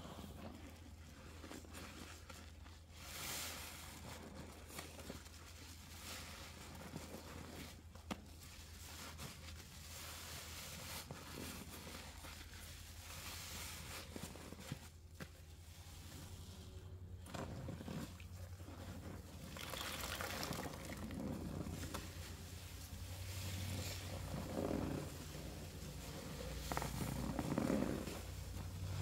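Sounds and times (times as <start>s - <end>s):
soapy sponge squelching: 0.0s - 29.0s
fizzing foam crackling: 18.7s - 22.5s.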